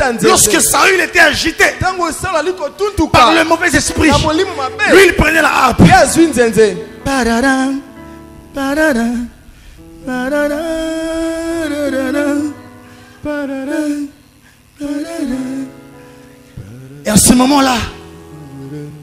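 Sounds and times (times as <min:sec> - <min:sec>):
soft instrumental backing: 0:00.0 - 0:19.0
person singing slow melody: 0:02.8 - 0:19.0.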